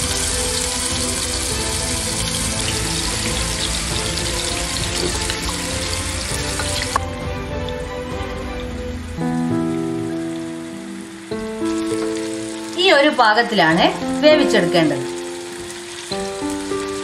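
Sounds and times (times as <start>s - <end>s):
chicken sizzling in hot oil: 0.0s - 7.0s, 8.2s - 17.0s
background music: 0.0s - 17.0s.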